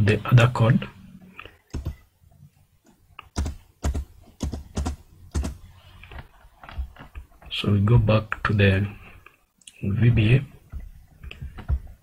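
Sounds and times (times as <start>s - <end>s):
keyboard keystrokes: 1.7s - 2.0s.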